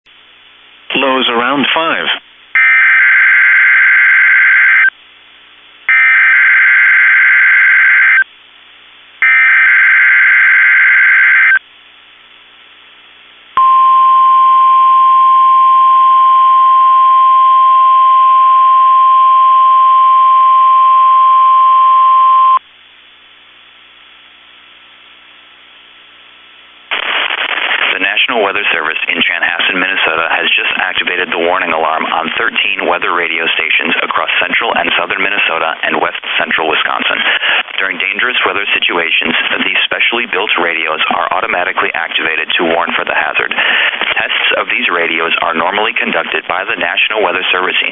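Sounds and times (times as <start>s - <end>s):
radio hiss: 0.8s - 2.3s, 26.9s - 47.9s
person speaking: 0.9s - 2.2s, 27.9s - 47.9s.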